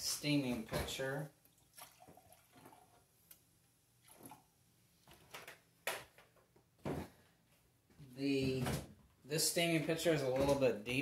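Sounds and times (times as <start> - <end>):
milk pouring into metal pitcher: 1.5 - 3.0.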